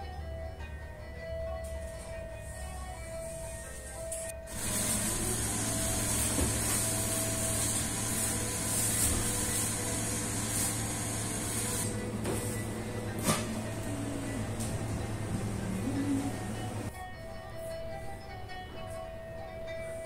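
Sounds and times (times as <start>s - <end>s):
oven convection fan rushing: 1.8s - 16.9s
low motor hum: 2.6s - 16.9s.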